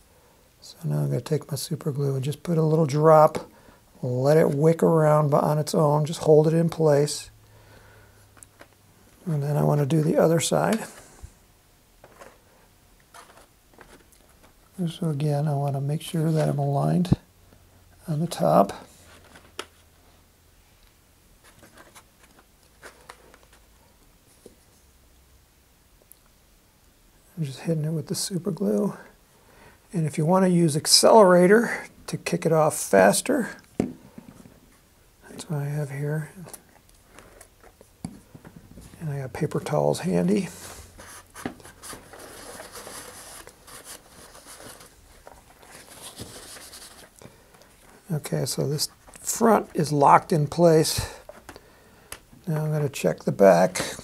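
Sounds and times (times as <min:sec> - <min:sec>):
scratchy plastic rustles: 0:12.0 - 0:17.2, 0:21.4 - 0:23.7, 0:36.3 - 0:50.2.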